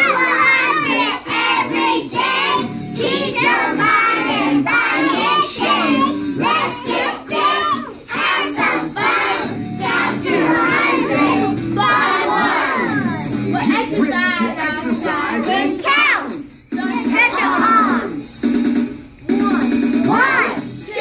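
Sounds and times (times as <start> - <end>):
music track: 0.0 - 14.2
children singing and chanting: 0.0 - 18.3, 19.3 - 21.0.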